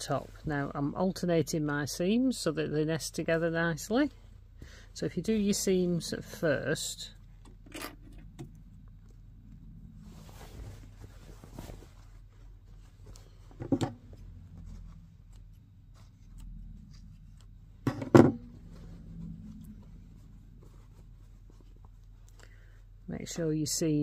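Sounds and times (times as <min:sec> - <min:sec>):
fabric rustling: 0:09.1 - 0:23.4.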